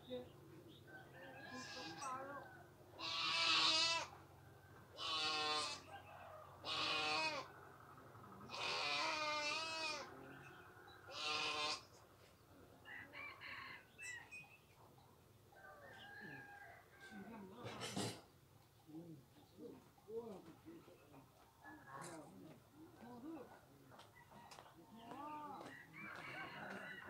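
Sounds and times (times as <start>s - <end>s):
goat bleating: 3.0s - 4.1s, 5.0s - 5.9s, 6.6s - 7.5s, 8.5s - 10.1s, 11.1s - 12.0s.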